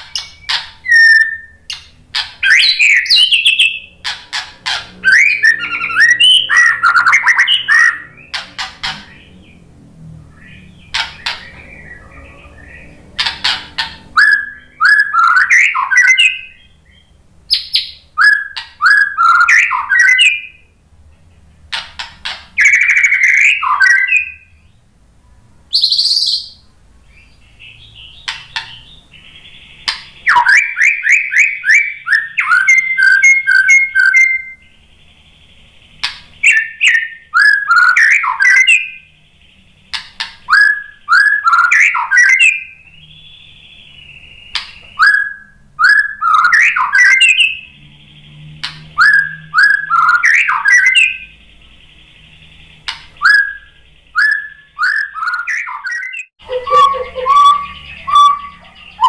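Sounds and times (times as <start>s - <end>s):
bird singing whistled phrases: 0.1s - 4.0s, 4.7s - 9.3s, 10.4s - 20.7s, 22.6s - 24.8s, 25.7s - 26.6s, 28.1s - 35.4s, 36.0s - 39.2s, 40.4s - 47.7s, 49.0s - 51.4s, 52.2s - 59.0s.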